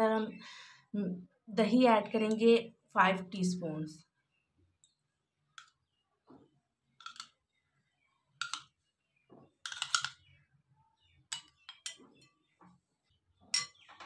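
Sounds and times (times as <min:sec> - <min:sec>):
spoon clinking on ceramic bowls: 0:07.0 - 0:07.4, 0:08.4 - 0:08.8, 0:09.6 - 0:10.3, 0:11.3 - 0:12.3, 0:13.5 - 0:14.0.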